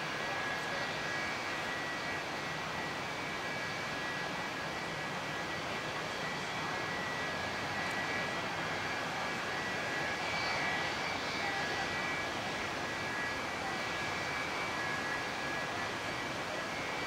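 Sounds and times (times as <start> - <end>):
jet engines whining at taxi power: 0.0 - 17.0.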